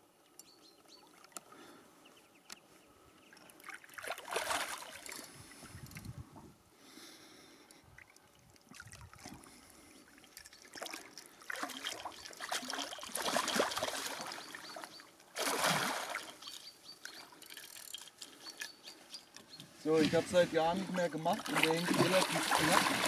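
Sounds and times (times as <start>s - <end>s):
fish thrashing and splashing water: 3.6s - 5.3s, 10.2s - 16.5s, 21.3s - 23.0s.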